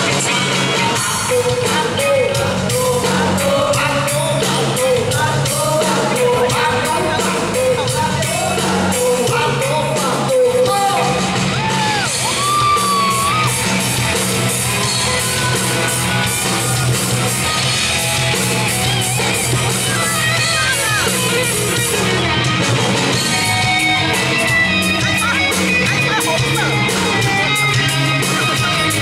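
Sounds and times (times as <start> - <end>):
person singing: 0.0 - 13.5, 23.4 - 29.0
bass guitar: 0.0 - 29.0
electric guitars: 0.0 - 29.0.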